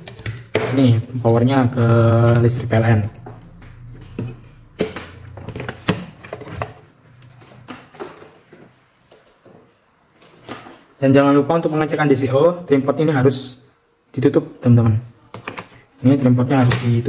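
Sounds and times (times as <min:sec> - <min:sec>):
faint low hum: 0:01.0 - 0:07.9.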